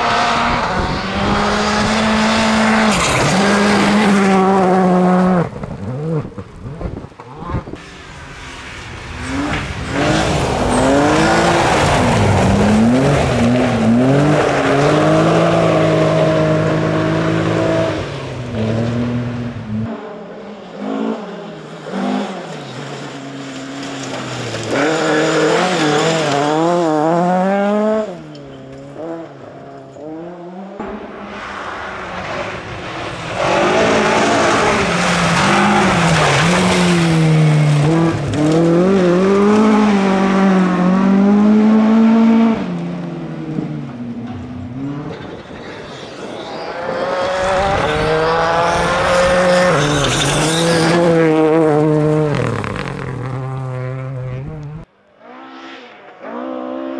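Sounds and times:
rally car engines revving: 0.0s - 56.9s
tyres on gravel: 21.8s - 29.0s, 31.3s - 39.9s.

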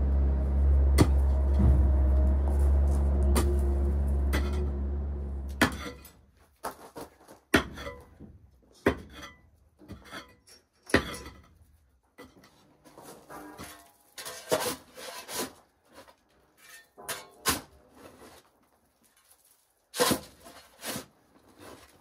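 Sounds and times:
low steady hum: 0.0s - 6.1s
pick mattock striking gravel: 0.0s - 6.1s
scraping and loose stones: 5.6s - 7.5s.

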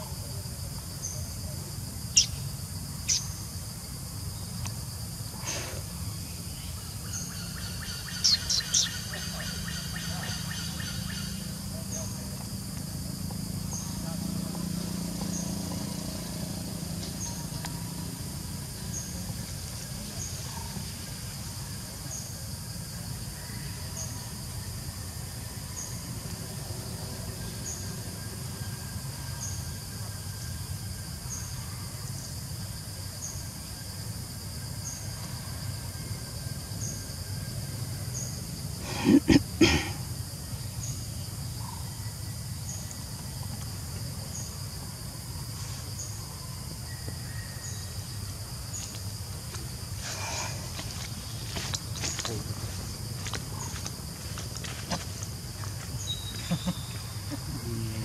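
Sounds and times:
insect chirping: 0.0s - 58.0s.

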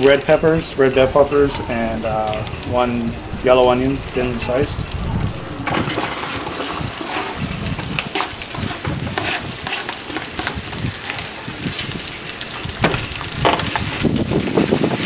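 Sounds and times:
tongs scraping foil pan: 6.6s - 14.0s.

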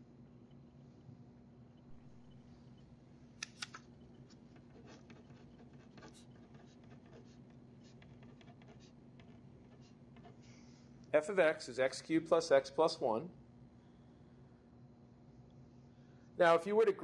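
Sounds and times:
pen scratching on paper: 4.2s - 10.5s.

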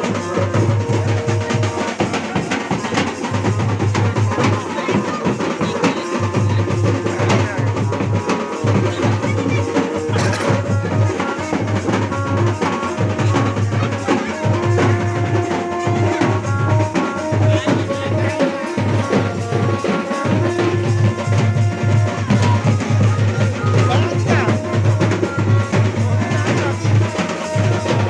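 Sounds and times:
heavy drum and bass beat: 0.0s - 28.0s
held melody notes: 0.0s - 28.0s
loud dance music: 22.2s - 24.6s.

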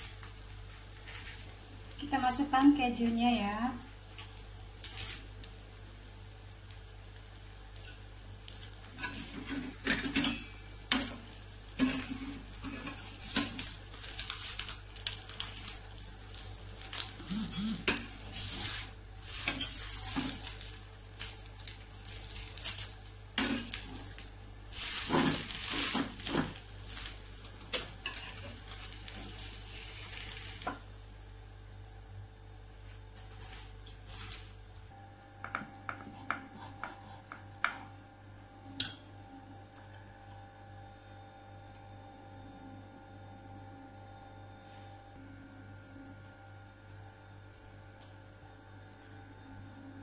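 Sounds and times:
bread sizzling in a pan: 0.0s - 31.6s.

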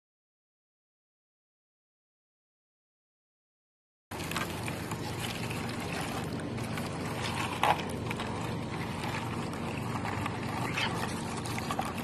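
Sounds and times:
water pouring into plastic dish: 4.1s - 12.0s.

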